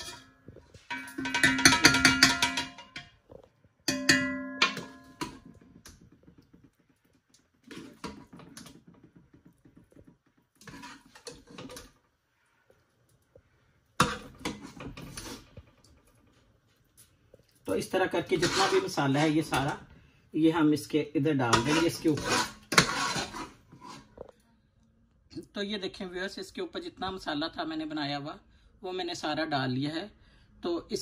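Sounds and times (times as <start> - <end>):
metal ladle striking a steel pot: 0.0 - 3.2, 3.9 - 5.6.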